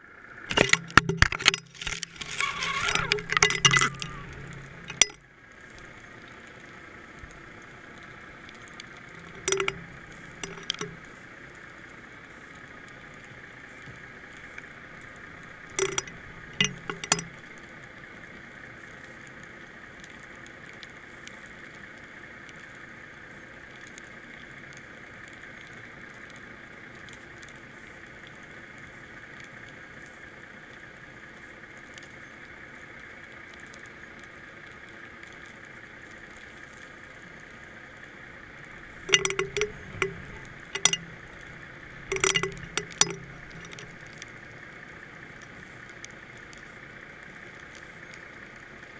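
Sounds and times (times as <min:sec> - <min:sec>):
camera rig clinks and knocks: 0:00.5 - 0:05.2, 0:09.2 - 0:11.0, 0:15.7 - 0:17.3, 0:39.1 - 0:44.2.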